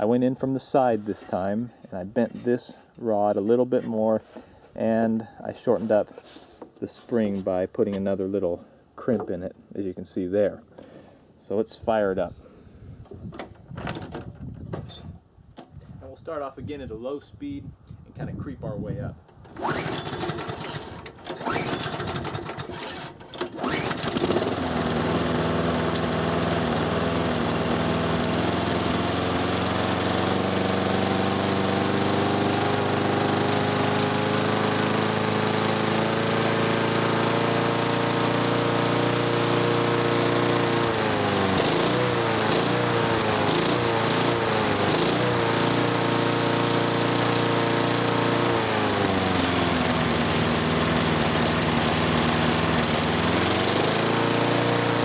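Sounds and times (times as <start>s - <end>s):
lawn mower engine revving up: 19.4s - 55.0s.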